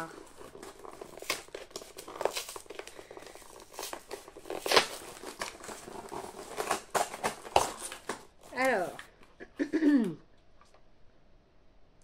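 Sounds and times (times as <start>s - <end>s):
packaging crinkling and rustling: 0.0s - 9.3s.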